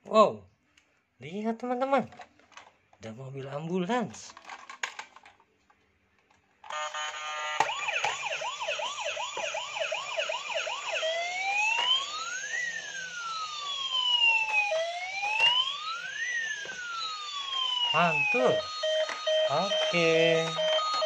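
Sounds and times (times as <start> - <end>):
toy electronic siren: 6.6 - 21.0.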